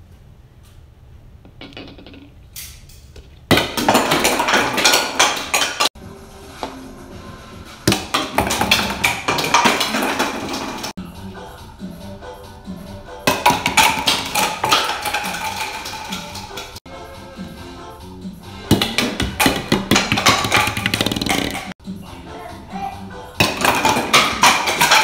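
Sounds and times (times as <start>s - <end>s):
plastic toy pins clattering on wood: 13.4s - 16.8s.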